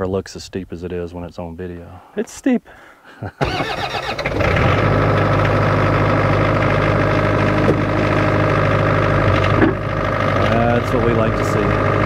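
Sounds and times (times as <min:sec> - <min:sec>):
diesel engine idling: 0:03.4 - 0:12.0
starter cranking: 0:03.4 - 0:12.0.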